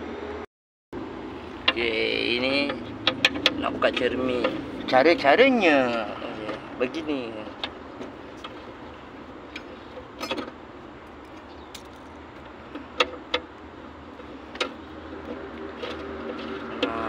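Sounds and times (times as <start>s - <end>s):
metal wrench clinking: 9.5s - 10.5s.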